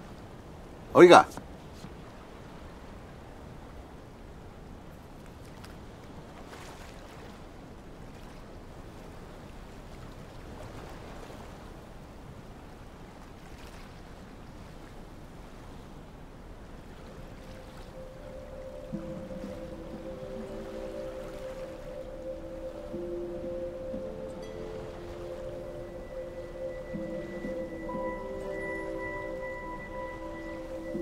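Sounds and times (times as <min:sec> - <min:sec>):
sea water washing: 0:16.6 - 0:31.0
held music note: 0:17.1 - 0:31.0.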